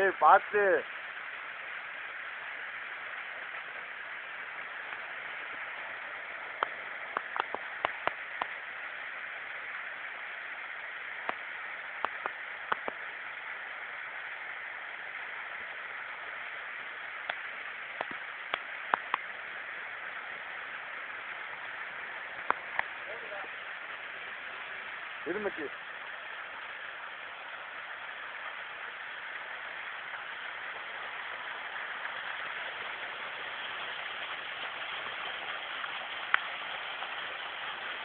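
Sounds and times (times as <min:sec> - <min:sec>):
waterfall rushing: 0:00.0 - 0:38.0.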